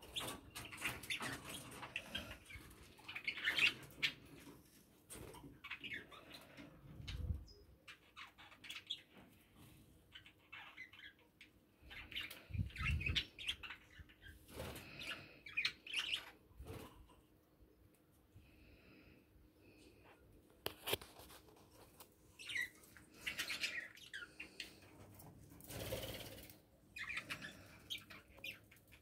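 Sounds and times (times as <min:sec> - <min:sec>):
budgerigars chirping and clicking: 0:00.0 - 0:09.2, 0:10.1 - 0:16.9, 0:22.4 - 0:29.0.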